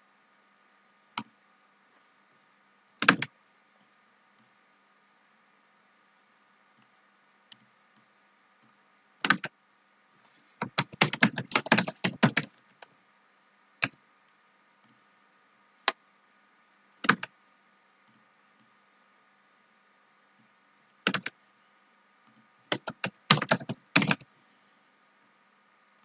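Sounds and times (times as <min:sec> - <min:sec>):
keyboard typing: 0:03.0 - 0:03.3, 0:09.2 - 0:09.5, 0:10.6 - 0:12.6, 0:17.0 - 0:17.3, 0:21.0 - 0:21.4, 0:22.3 - 0:24.3.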